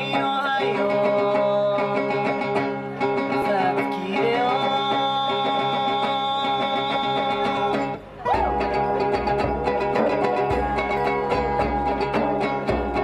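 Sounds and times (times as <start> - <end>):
acoustic guitar: 0.0 - 13.0
plucked strings: 0.0 - 13.0
sliding melody line: 7.8 - 13.0.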